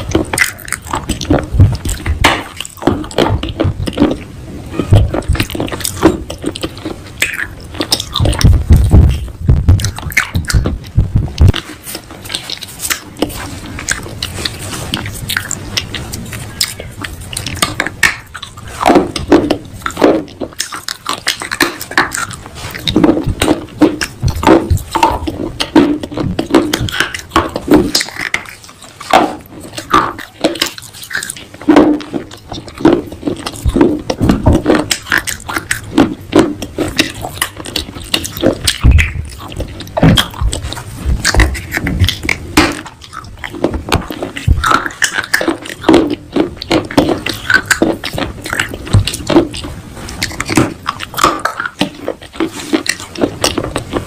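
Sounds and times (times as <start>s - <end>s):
brittle crunching of chewing: 0.0s - 54.0s.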